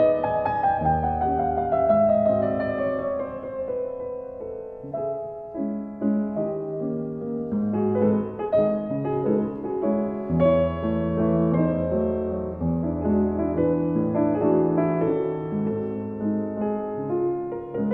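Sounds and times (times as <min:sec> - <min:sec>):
piano music: 0:00.0 - 0:17.9.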